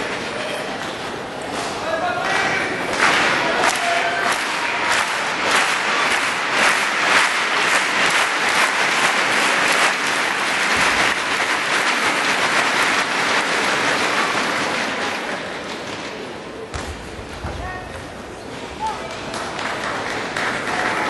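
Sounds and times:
crowd applauding: 2.2s - 16.3s, 18.8s - 21.0s.

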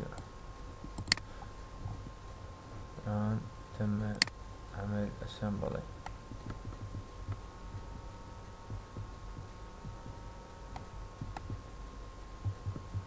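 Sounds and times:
electrical whine: 0.0s - 13.0s
soft low thumps: 0.6s - 3.1s, 6.0s - 13.0s
computer mouse clicks: 0.9s - 1.2s.

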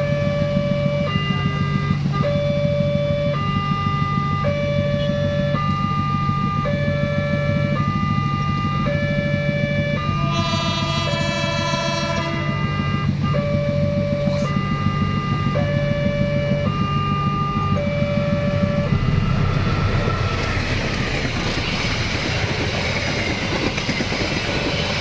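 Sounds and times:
two-tone crossing alarm: 0.0s - 25.0s
motorbike engines idling: 6.7s - 16.6s
train horn blast: 9.8s - 15.8s.

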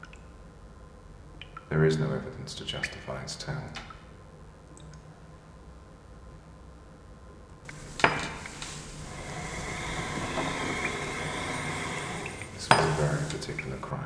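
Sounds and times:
hissing ringing rattle: 7.7s - 13.9s.

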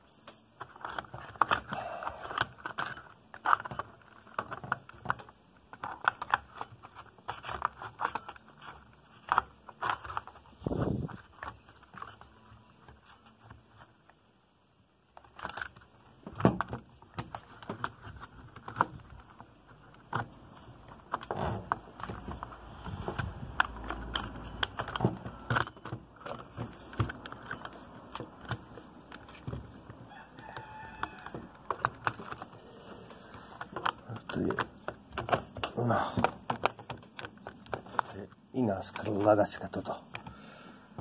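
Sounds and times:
plastic housing clicking and rattling: 0.1s - 14.2s, 15.1s - 41.0s.

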